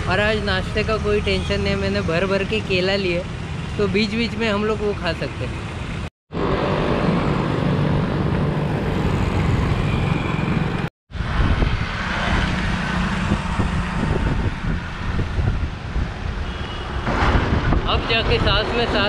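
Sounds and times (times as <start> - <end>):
road traffic noise: 0.0 - 19.0
wind rushing on microphone: 6.4 - 19.0.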